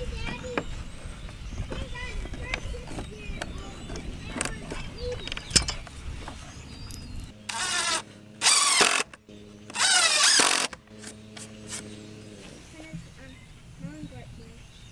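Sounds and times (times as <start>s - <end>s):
power drill driving screws: 7.5s - 11.1s.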